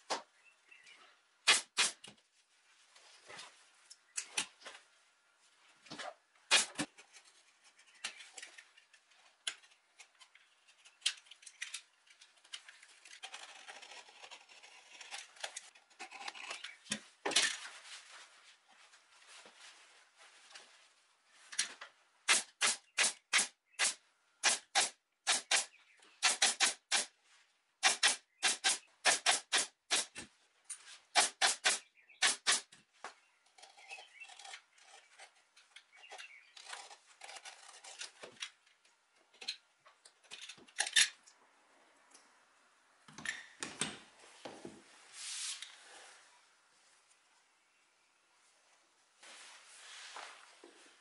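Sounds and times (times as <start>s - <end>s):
pneumatic stapler firing: 1.5s - 2.0s, 6.5s - 6.8s, 22.3s - 27.1s, 27.8s - 30.2s, 31.2s - 32.7s.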